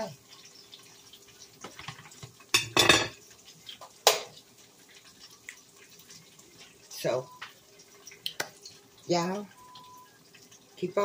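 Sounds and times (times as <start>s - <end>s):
dishes and utensils clattering: 1.6s - 3.2s.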